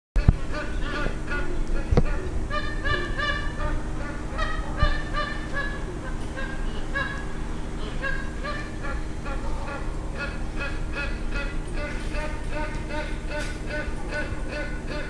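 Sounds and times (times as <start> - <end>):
geese honking: 0.2 - 15.0.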